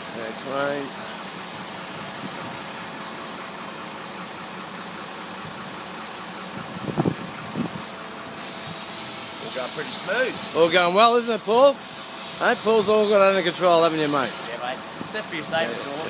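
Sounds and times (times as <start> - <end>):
crane engine idling: 0.0 - 16.0
hiss: 8.3 - 14.6, 15.5 - 16.0.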